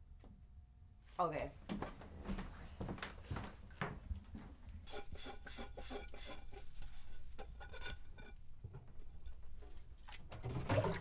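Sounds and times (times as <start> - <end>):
faint scrubbing: 4.9 - 9.9.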